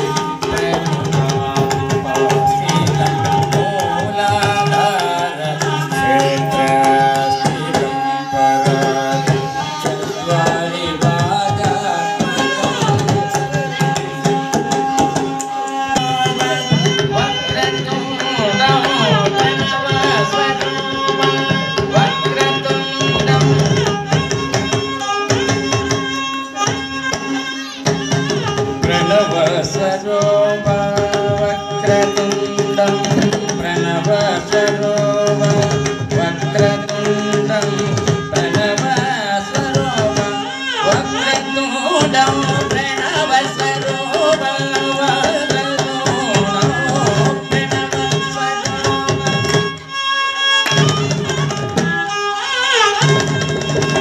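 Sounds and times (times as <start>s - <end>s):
man singing: 0.0s - 26.0s, 28.4s - 49.8s
violin: 0.0s - 54.0s.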